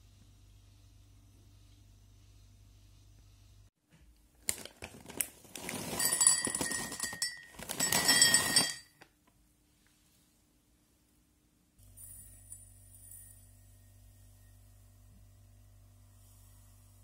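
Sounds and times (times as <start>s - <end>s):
almonds clattering into glass cup: 5.5s - 9.0s
faint high glass ring: 11.8s - 15.0s.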